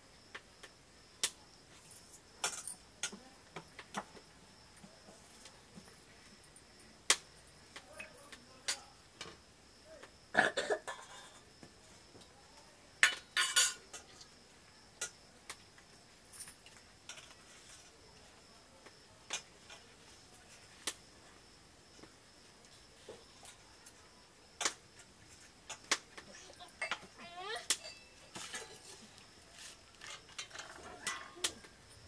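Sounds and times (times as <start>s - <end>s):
steel dishes clinking and scraping: 13.1s - 14.1s, 27.7s - 29.0s.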